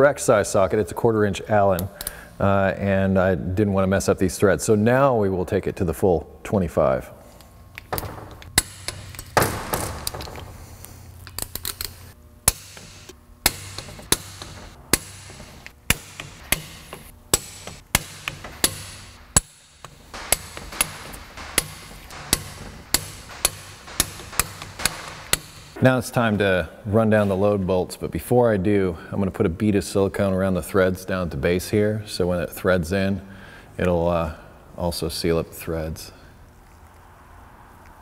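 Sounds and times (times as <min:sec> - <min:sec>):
tool handling noise: 0:07.4 - 0:25.8
torque wrench clicking: 0:11.2 - 0:25.8.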